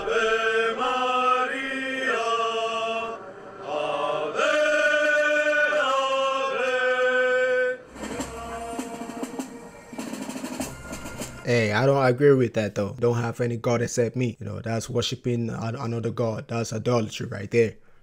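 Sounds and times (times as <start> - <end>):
men chanting in unison: 0.0 - 9.1
background noise: 0.0 - 18.0.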